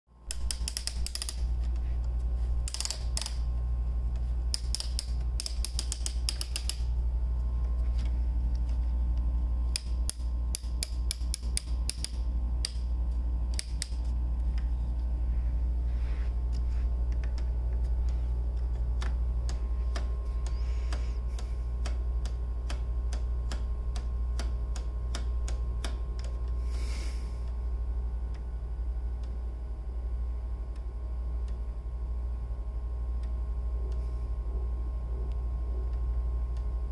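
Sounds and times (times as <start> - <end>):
steady low hum: 0.1 - 36.9
clock escapement ticking: 0.3 - 1.5, 4.5 - 6.9, 9.7 - 12.8
wooden gear clicks: 0.3 - 1.7, 2.6 - 3.5, 4.5 - 6.9, 9.7 - 12.8.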